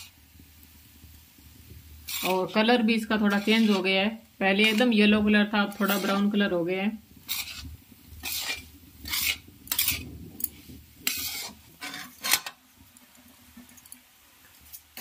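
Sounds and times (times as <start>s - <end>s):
metal spatula scraping pan: 2.0s - 6.6s, 7.2s - 12.6s.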